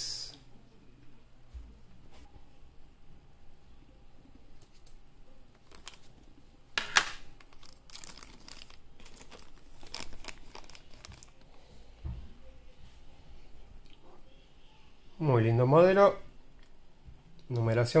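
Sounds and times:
crinkling and rustling: 0:04.6 - 0:12.2.

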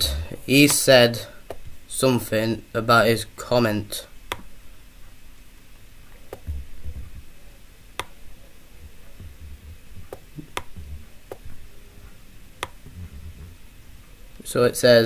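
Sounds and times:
soft low bumps: 0:06.2 - 0:14.3.

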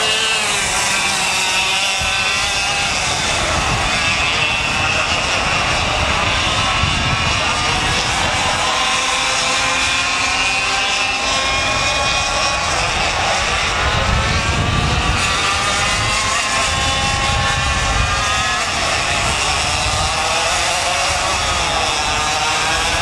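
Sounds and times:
kart engines racing: 0:00.0 - 0:23.0.

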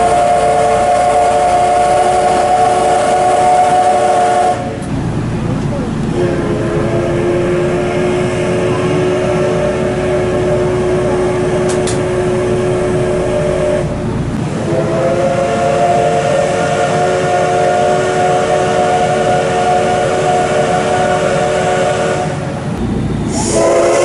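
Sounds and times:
steam locomotive whistle blasts: 0:00.0 - 0:04.8, 0:06.1 - 0:22.5, 0:23.3 - 0:24.0
low rumble: 0:04.7 - 0:14.8, 0:22.6 - 0:23.4.

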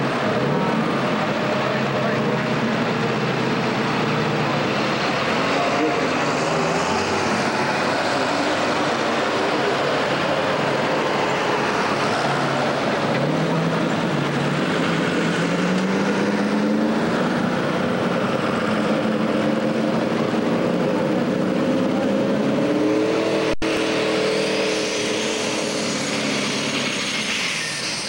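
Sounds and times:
tractor engine running hard: 0:00.0 - 0:28.0.

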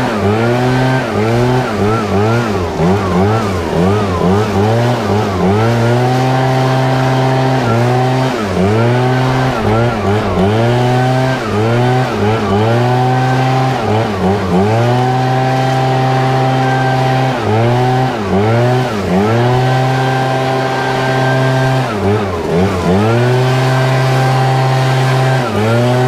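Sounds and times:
leaf blower engine at full throttle: 0:00.0 - 0:26.0
loud rush of air: 0:07.1 - 0:18.0.

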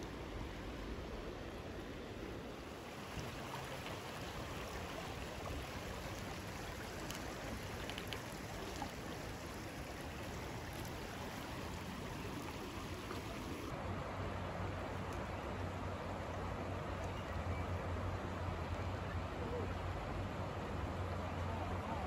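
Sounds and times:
creek water rushing over rocks: 0:00.0 - 0:17.1.

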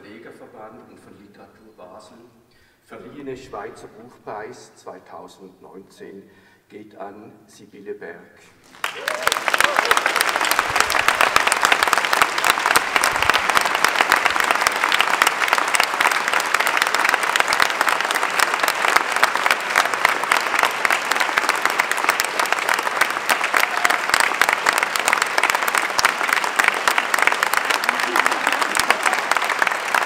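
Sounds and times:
audience applauding: 0:08.6 - 0:30.0.

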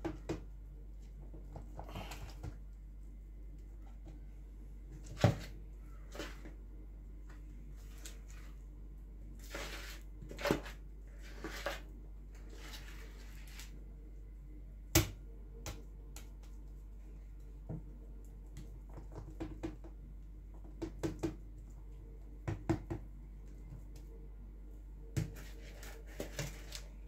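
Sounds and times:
spoon scraping batter in tin: 0:09.4 - 0:13.8.

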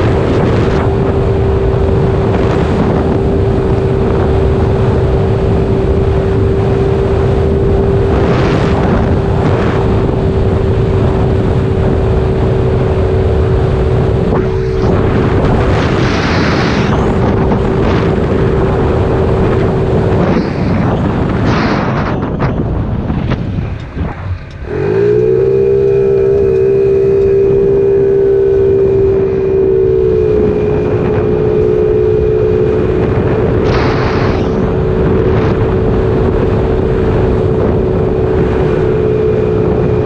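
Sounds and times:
scooter engine cruising: 0:00.0 - 0:40.0
wind noise on microphone: 0:00.0 - 0:40.0.

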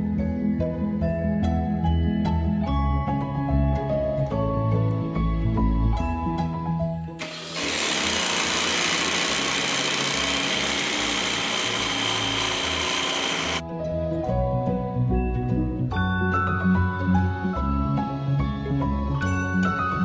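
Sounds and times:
food processor whirring: 0:07.2 - 0:13.6.

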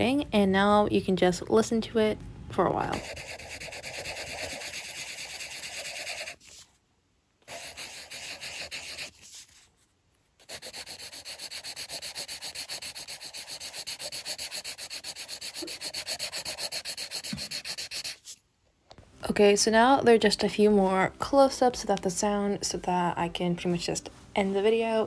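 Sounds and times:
pencil scratching on paper: 0:02.9 - 0:06.6, 0:07.4 - 0:09.7, 0:10.4 - 0:18.4.

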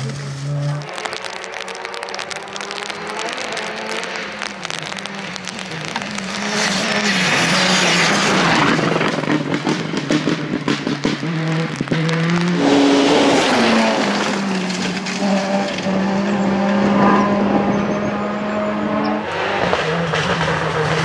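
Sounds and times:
hiss of flung gravel: 0:00.0 - 0:09.4, 0:12.5 - 0:15.8
sharp cracks: 0:00.0 - 0:16.0
rally car engine at full throttle: 0:00.0 - 0:21.0.

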